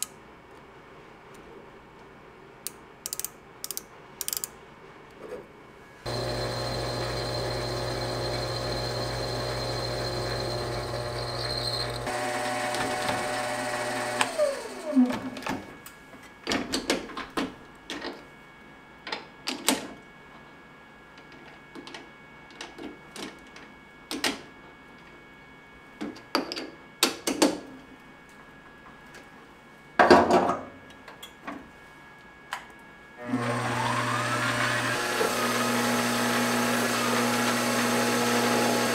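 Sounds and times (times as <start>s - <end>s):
lathe motor whine: 6.1s - 15.4s, 33.2s - 38.9s.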